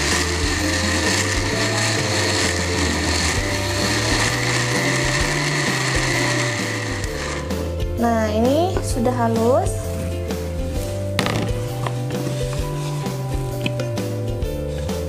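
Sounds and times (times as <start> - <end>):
blender running: 0.0 - 8.0, 11.2 - 14.8.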